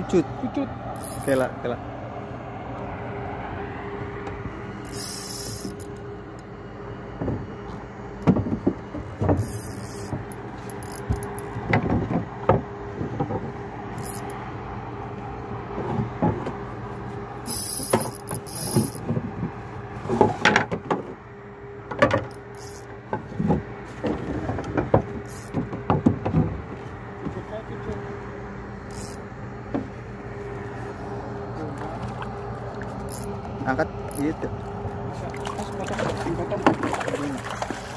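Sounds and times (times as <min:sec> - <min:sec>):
steady mechanical hum: 0:00.0 - 0:37.9
fishing reel clicking: 0:01.0 - 0:01.4, 0:04.8 - 0:06.0, 0:09.4 - 0:11.5, 0:14.0 - 0:14.4, 0:17.5 - 0:19.0, 0:22.3 - 0:22.9, 0:25.2 - 0:25.5, 0:28.9 - 0:29.2, 0:33.0 - 0:33.4, 0:34.1 - 0:34.4.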